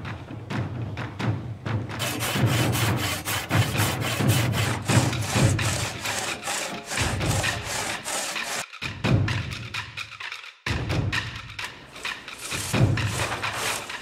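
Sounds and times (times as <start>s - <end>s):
hand saw cutting wood: 2.0s - 8.7s, 11.8s - 14.0s.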